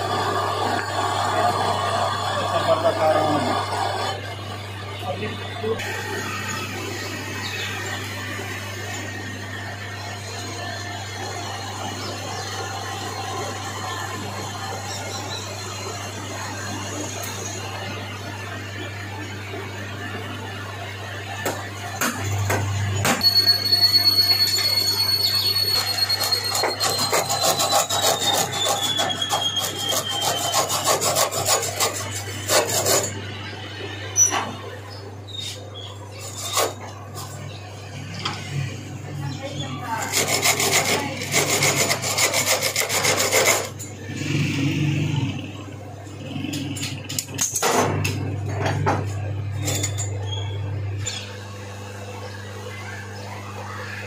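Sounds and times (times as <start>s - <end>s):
lathe motor hum: 0.0s - 18.1s
cutting tool cutting steel: 25.3s - 33.2s, 40.0s - 43.8s.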